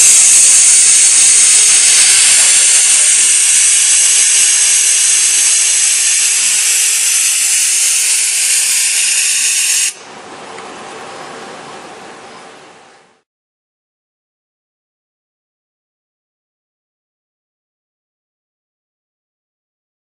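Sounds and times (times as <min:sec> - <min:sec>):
compressed air hissing: 0:00.0 - 0:10.0.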